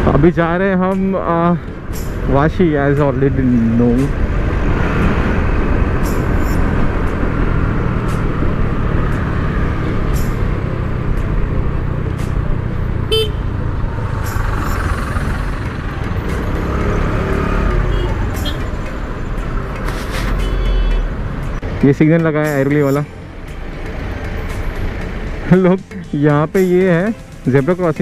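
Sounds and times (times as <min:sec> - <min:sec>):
traffic and riding noise: 0:00.0 - 0:28.0
short vehicle horn toot: 0:13.1 - 0:13.4, 0:20.4 - 0:21.0.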